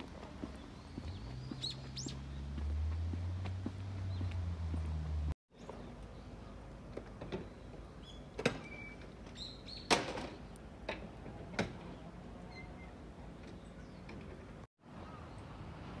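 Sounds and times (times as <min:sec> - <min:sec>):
footsteps on pavement: 0:00.0 - 0:06.0
bird chirps: 0:00.5 - 0:02.6, 0:07.4 - 0:09.9.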